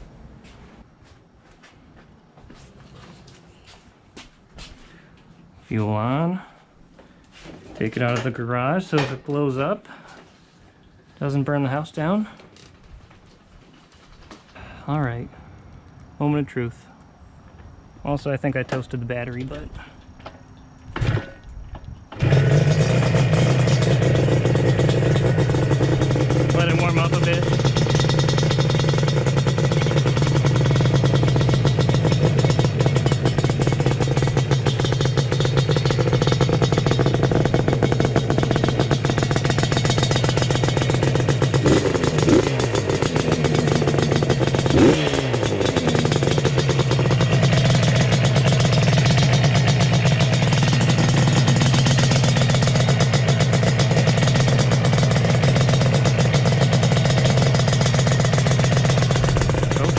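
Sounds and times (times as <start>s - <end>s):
engine revving: 22.2s - 59.9s
two-stroke engine idling: 22.2s - 59.9s.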